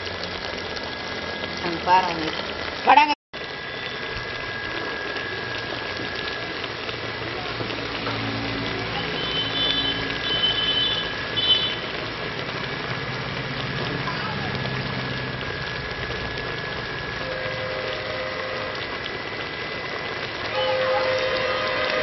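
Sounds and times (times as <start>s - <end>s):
food bubbling and sizzling in pot: 0.0s - 22.0s
faint high-pitched sounds: 20.4s - 22.0s.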